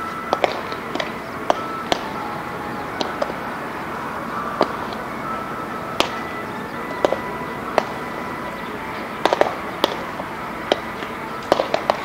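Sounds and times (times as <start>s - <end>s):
background hiss: 0.0s - 12.0s.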